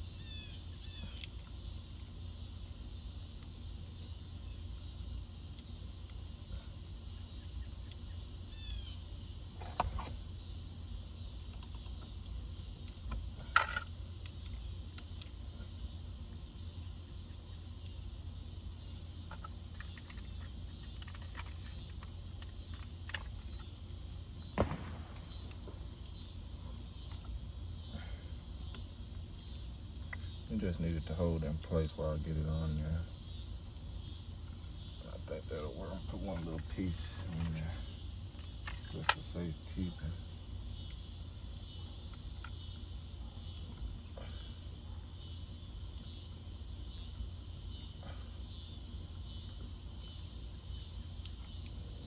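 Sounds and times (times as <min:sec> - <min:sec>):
crickets chirping: 0:00.0 - 0:52.0
parts clicking and knocking: 0:13.0 - 0:15.3
low hum: 0:19.0 - 0:40.2.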